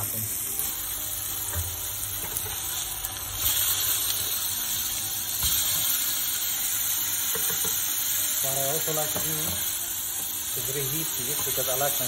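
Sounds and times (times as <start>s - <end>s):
burger patties sizzling in a pan: 0.0s - 12.0s.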